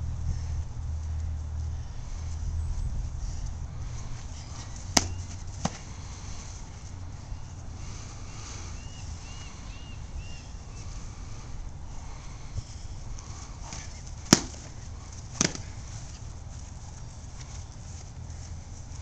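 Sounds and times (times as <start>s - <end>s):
wind rumble on microphone: 0.0s - 5.0s.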